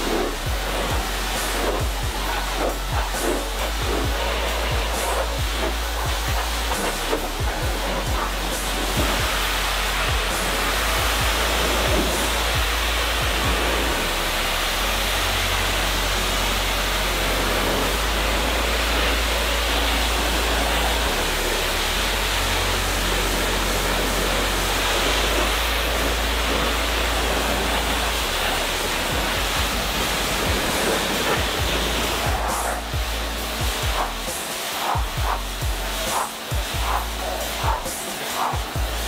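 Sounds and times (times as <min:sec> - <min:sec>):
pressure washer spraying: 0:00.0 - 0:39.0.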